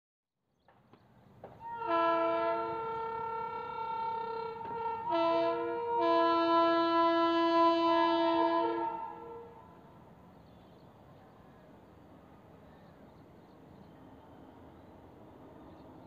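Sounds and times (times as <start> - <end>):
locomotive horn blast: 1.6 - 9.8.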